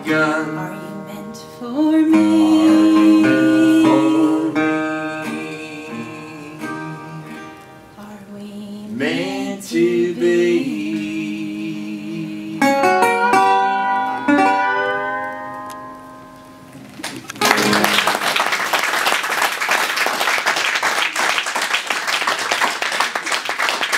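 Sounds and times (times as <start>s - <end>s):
acoustic guitar notes ringing: 0.0s - 8.2s, 8.9s - 18.3s
audience applause: 16.9s - 23.9s.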